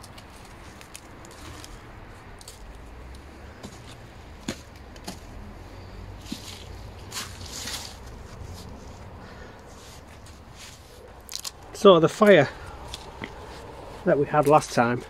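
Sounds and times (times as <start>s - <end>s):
rustling scrape: 0.0s - 2.8s, 3.4s - 11.6s
small clicks and scuffs in soil: 0.0s - 15.0s.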